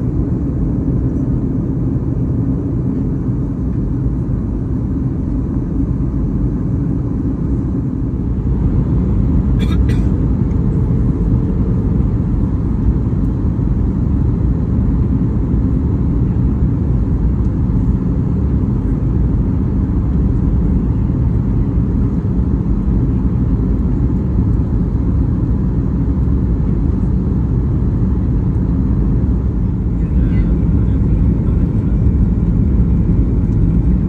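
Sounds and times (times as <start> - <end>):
airliner cabin rumble: 0.0 - 34.0.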